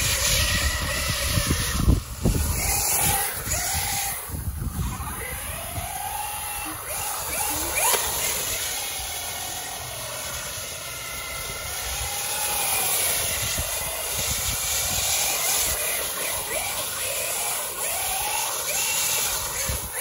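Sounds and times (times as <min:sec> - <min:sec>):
electric motor whining: 0:00.0 - 0:20.0.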